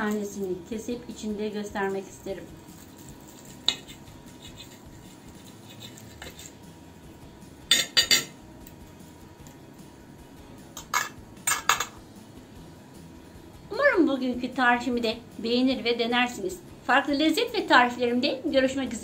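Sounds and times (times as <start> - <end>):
knife and fork scraping a plate: 3.3 - 6.7.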